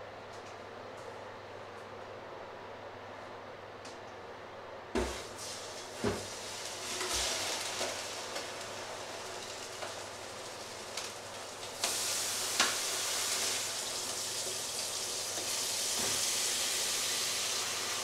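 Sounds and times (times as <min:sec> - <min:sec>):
water running into sink: 0:05.0 - 0:18.0.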